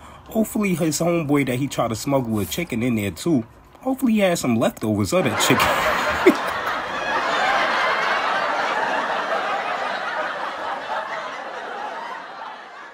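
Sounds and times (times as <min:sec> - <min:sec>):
crowd laughing: 0:05.2 - 0:12.9.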